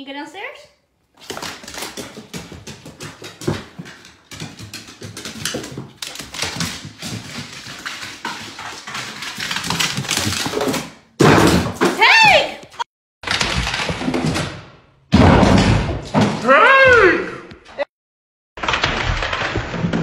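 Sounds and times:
dog paws thumping on wooden stairs: 0:01.2 - 0:12.2.

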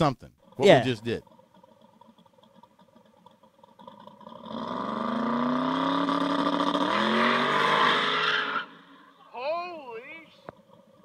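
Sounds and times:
drag car engine revving: 0:01.3 - 0:09.2.

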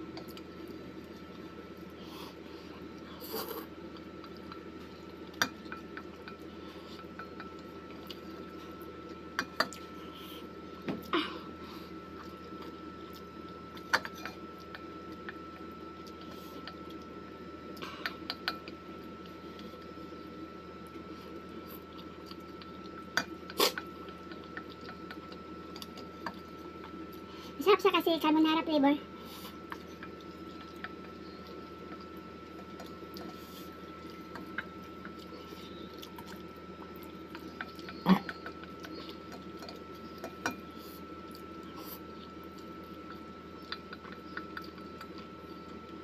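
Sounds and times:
faint hum: 0:00.0 - 0:46.0
quiet chewing: 0:00.2 - 0:20.0, 0:29.3 - 0:46.0.

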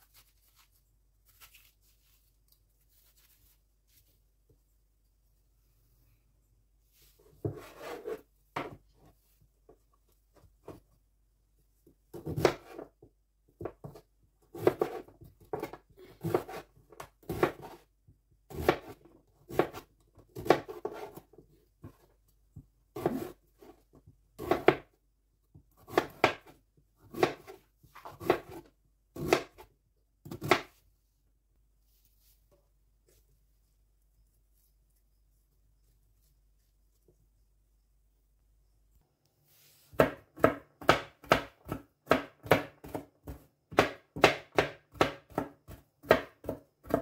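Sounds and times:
knife slicing zucchini on board: 0:14.6 - 0:17.8, 0:23.0 - 0:23.7, 0:27.1 - 0:29.6.

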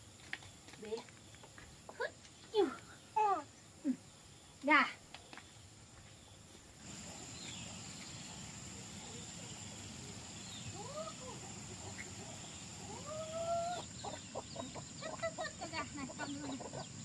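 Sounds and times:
small birds chirping: 0:00.2 - 0:17.0
chickens clucking: 0:06.8 - 0:17.0.

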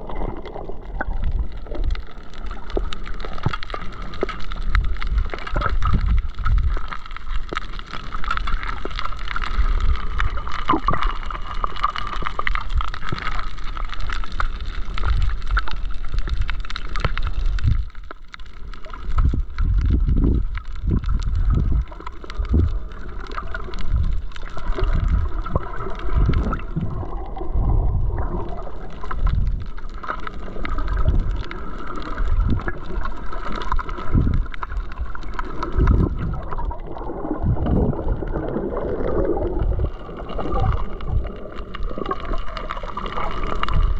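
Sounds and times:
crackle of fine clicks: 0:00.0 - 0:43.9
water gurgling underwater: 0:00.0 - 0:43.9
muffled underwater surges: 0:19.2 - 0:43.9.

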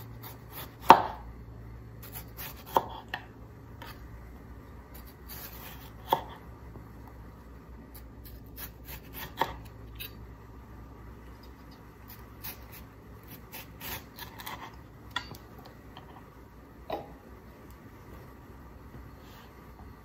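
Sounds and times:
knife slicing tomato: 0:00.0 - 0:01.3, 0:02.0 - 0:04.1, 0:04.9 - 0:06.5, 0:07.9 - 0:10.2, 0:11.3 - 0:15.4.

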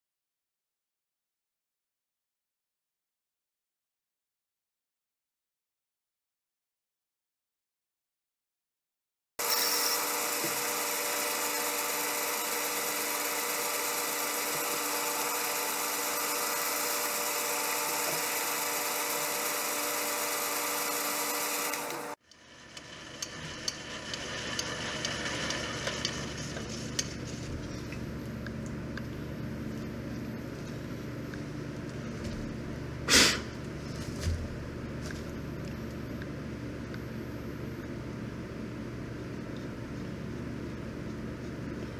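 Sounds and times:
metal lathe humming and whining: 0:09.4 - 0:26.8.

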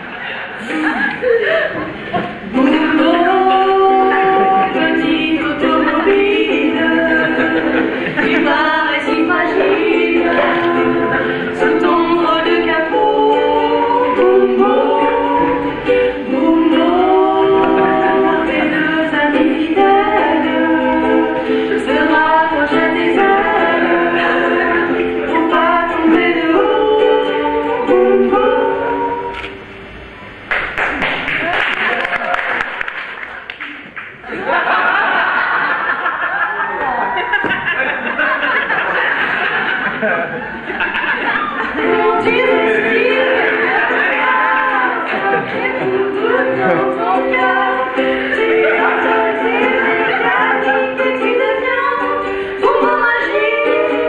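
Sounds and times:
women singing together: 0:00.6 - 0:29.3, 0:40.9 - 0:54.0
light ukulele: 0:02.2 - 0:29.5, 0:41.6 - 0:54.0.

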